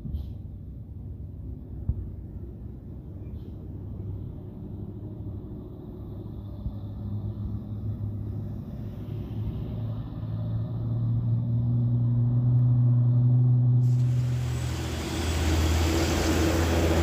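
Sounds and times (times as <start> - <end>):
car and van engines passing: 0.2 - 17.0
truck diesel engine labouring: 13.8 - 17.0.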